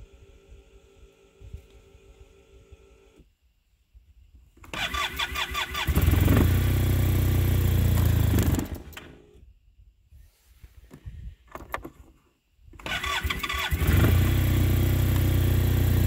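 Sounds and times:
starter cranking engine: 4.6 - 9.0, 12.8 - 16.0
engine turning over: 4.6 - 9.2, 12.8 - 16.0
electric starter whine: 4.6 - 9.5, 12.7 - 16.0.

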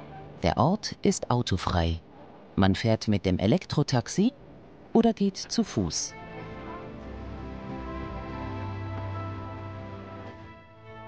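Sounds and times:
held chords: 6.1 - 11.0.

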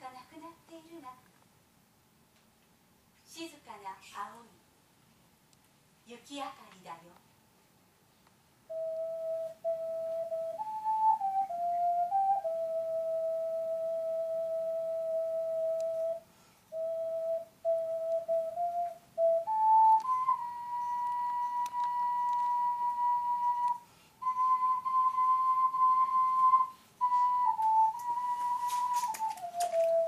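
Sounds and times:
ocarina slow melody: 8.7 - 30.0.

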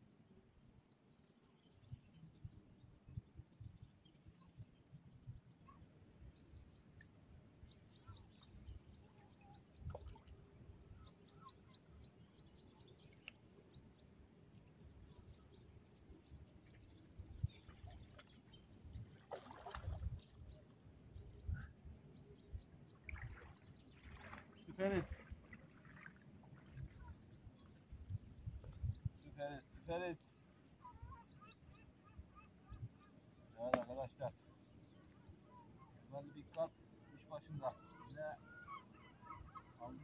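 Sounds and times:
rustling splash: 19.1 - 20.3, 23.1 - 26.8.

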